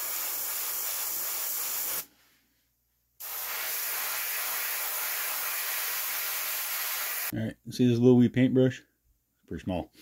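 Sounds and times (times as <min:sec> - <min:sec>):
airbrush hissing: 0:00.0 - 0:02.1, 0:03.2 - 0:07.3.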